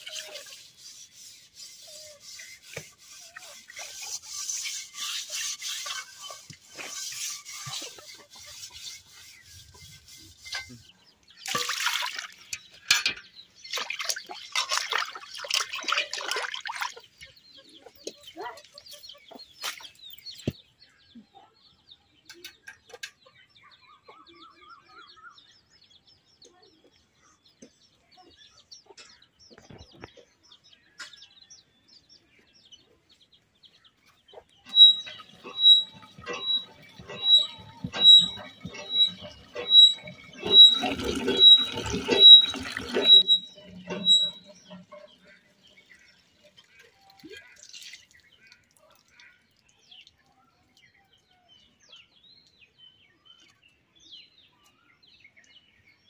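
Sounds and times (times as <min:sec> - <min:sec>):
scrubbing metal wok: 0:00.0 - 0:10.8, 0:34.7 - 0:45.4
chickens clucking: 0:00.0 - 0:11.3, 0:32.8 - 0:47.6.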